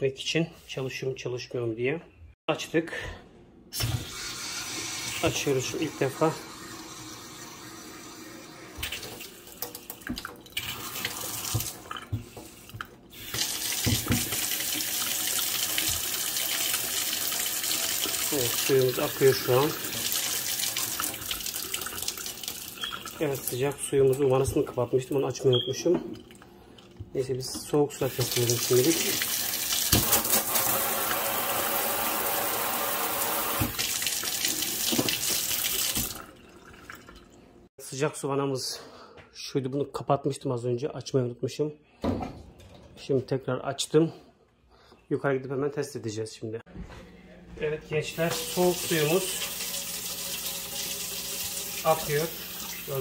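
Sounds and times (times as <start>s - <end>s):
water pouring into steel sink: 6.2s - 24.3s, 48.2s - 53.0s.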